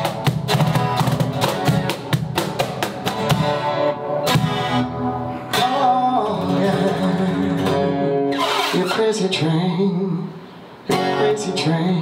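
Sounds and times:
cajon hits: 0:00.0 - 0:04.8
acoustic guitar strumming: 0:00.0 - 0:12.0
man singing: 0:05.4 - 0:12.0.

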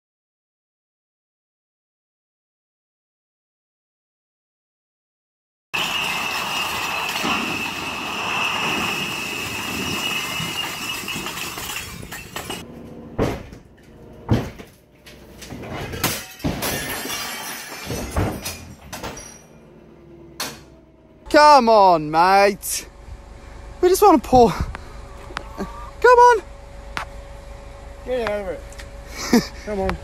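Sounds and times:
glass bottles shattering: 0:05.8 - 0:12.6, 0:15.7 - 0:19.6
bottles clinking and knocking: 0:09.7 - 0:12.6.

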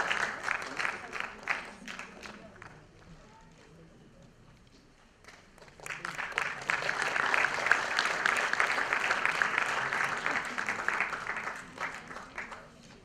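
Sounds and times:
audience applauding: 0:00.0 - 0:02.7, 0:05.3 - 0:12.8.

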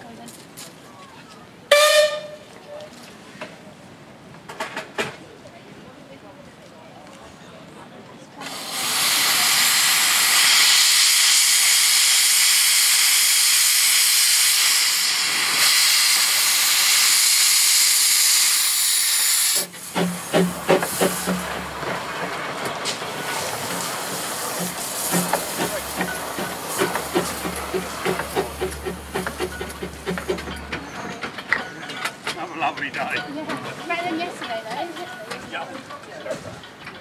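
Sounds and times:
locomotive steam hissing: 0:08.4 - 0:35.1
clicks and clanks: 0:20.0 - 0:33.7.

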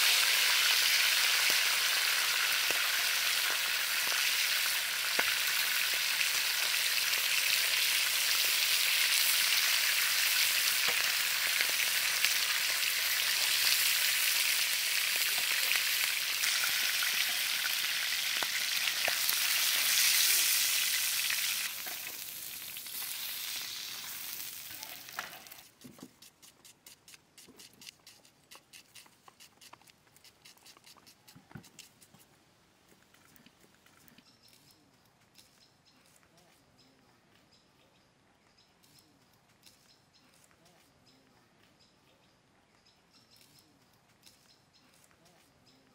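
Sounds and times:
fish frying in hot oil: 0:00.0 - 0:25.6.

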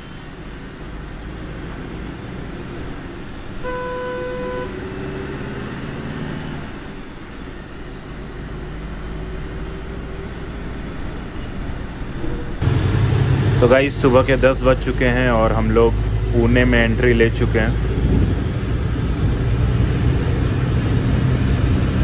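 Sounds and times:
bus engine and road rumble: 0:00.0 - 0:22.0
vehicle horn: 0:03.5 - 0:05.4.

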